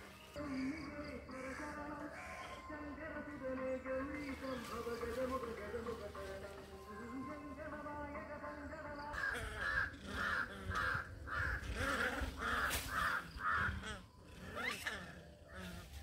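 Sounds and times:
animal harsh calls: 0:09.2 - 0:16.0.

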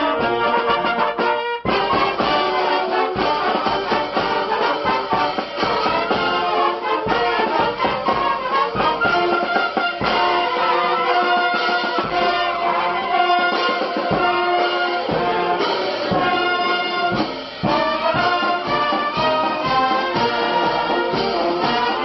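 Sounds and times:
brass band playing: 0:00.0 - 0:22.0
bass drum beat: 0:01.7 - 0:13.0.

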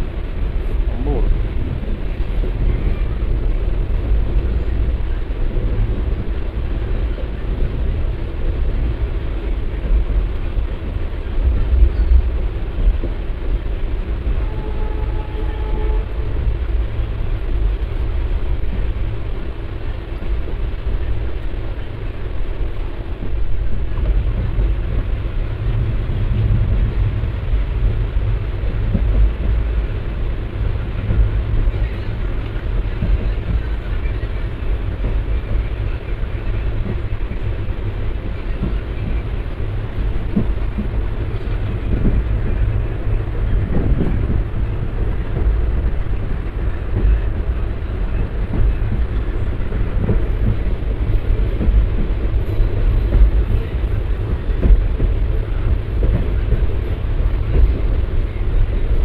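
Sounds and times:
train wheels rumbling on track: 0:00.0 - 0:59.0.

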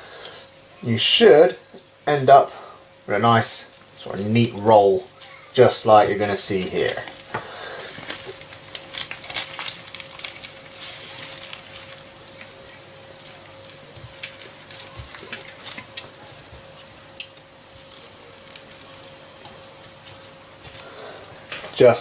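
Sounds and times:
bamboo mat clicking and rustling: 0:13.2 - 0:16.8.

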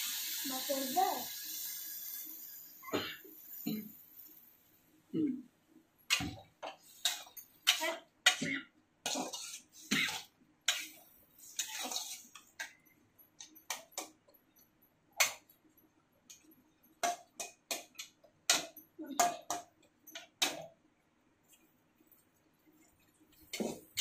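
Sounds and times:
metal spatula scraping wok: 0:06.8 - 0:12.7.

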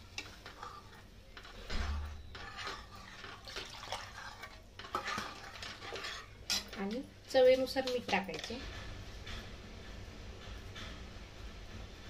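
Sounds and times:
ladle scraping metal pan: 0:00.0 - 0:08.6
liquid sloshing in pan: 0:00.0 - 0:08.7.

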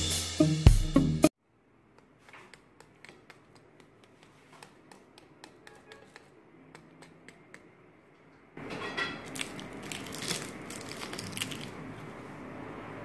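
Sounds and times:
knife cutting crunchy pastry: 0:08.8 - 0:12.2.

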